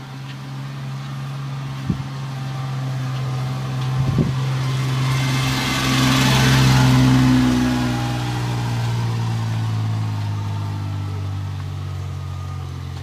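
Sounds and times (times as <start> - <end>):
van engine passing: 0.0 - 13.0.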